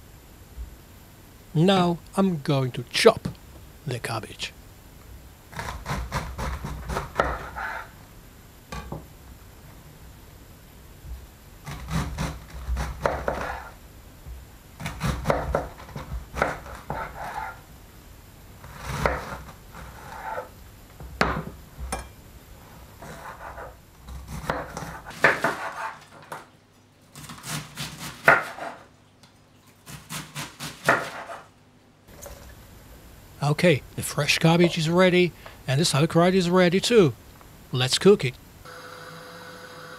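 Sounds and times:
knife chopping cabbage on board: 5.6 - 7.9, 11.7 - 13.7, 14.8 - 17.6, 18.6 - 20.5, 23.0 - 26.4, 27.2 - 28.8, 29.8 - 31.4.

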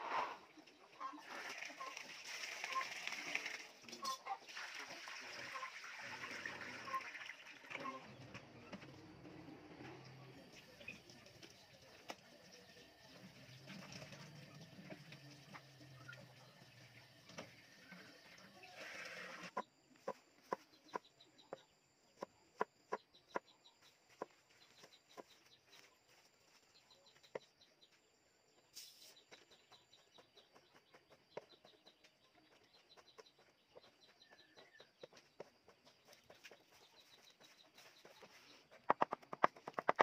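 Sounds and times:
chicken clucking: 17.9 - 26.2, 29.0 - 40.0.

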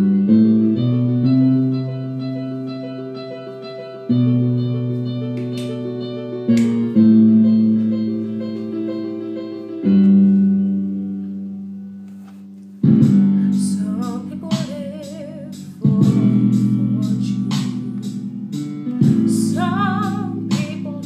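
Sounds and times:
slow piano chords: 0.0 - 21.0
woman singing with vibrato: 13.4 - 18.3, 19.0 - 21.0.

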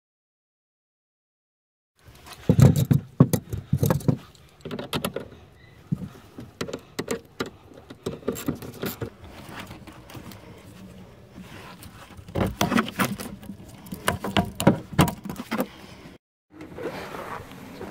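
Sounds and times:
socket wrench clicking and clanking: 6.4 - 9.1.

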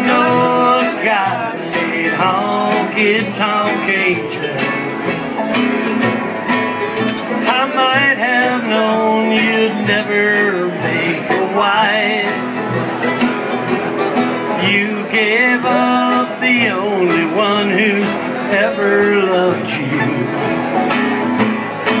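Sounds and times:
fiddle melody: 0.0 - 22.0
strummed acoustic guitar: 0.0 - 22.0.

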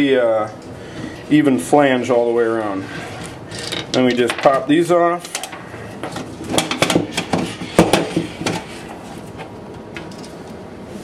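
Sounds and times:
wooden dies knocking and clattering: 3.6 - 4.6.

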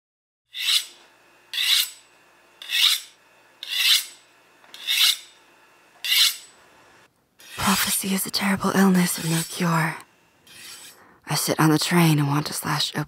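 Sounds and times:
knife sharpening strokes: 0.5 - 2.0, 2.6 - 5.4, 6.0 - 6.5, 7.4 - 7.9, 8.9 - 9.7, 10.5 - 11.0.

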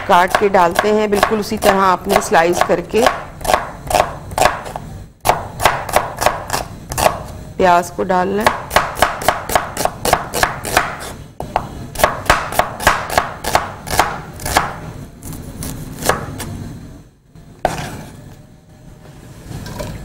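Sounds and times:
knife chopping onion on board: 0.0 - 7.3, 8.4 - 14.8.

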